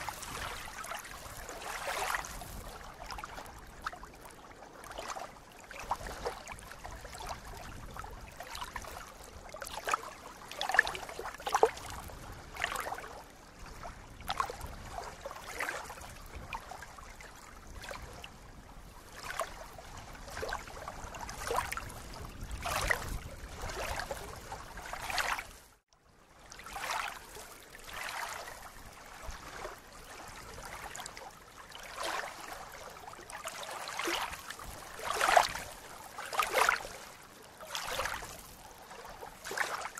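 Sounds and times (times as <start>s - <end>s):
small waves lapping and splashing: 0.0s - 39.9s.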